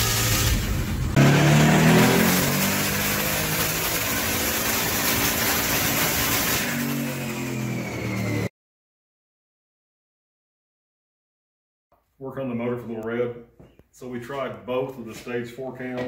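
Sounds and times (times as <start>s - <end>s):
engine at full throttle: 0.0s - 8.5s.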